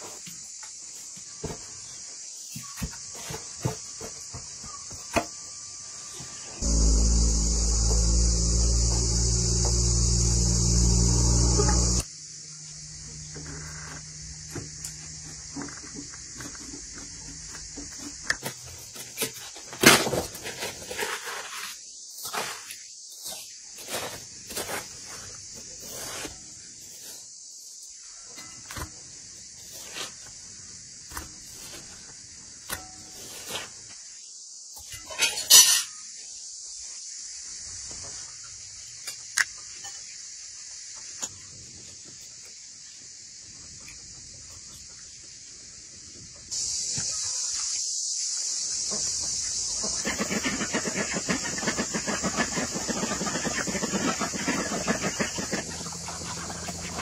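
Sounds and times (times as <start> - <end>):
steady high hiss: 6.6 - 15.2, 42.5 - 50.2.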